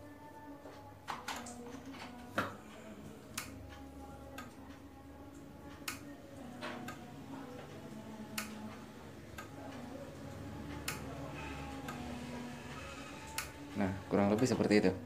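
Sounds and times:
faint motor hum: 0:00.0 - 0:15.0.

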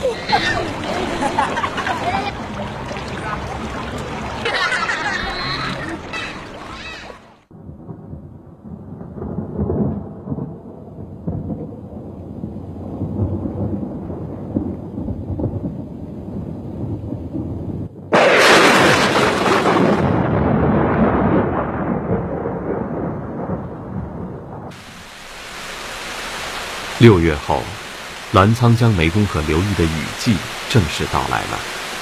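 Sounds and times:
thunder crash: 0:07.5 - 0:24.9
rolling thunder: 0:07.5 - 0:25.1.

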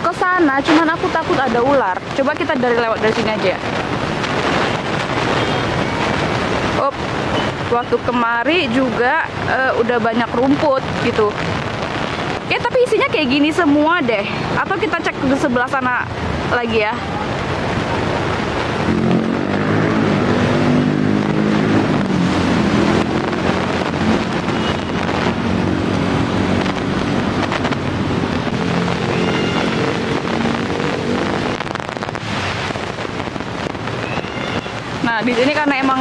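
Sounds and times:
road traffic: 0:00.0 - 0:36.0
wind buffeting microphone: 0:00.0 - 0:36.0
vehicle engine droning: 0:18.8 - 0:33.0.

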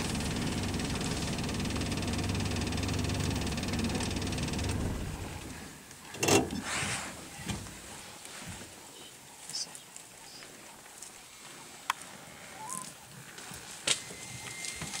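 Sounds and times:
vehicle engine idling: 0:00.0 - 0:05.8.

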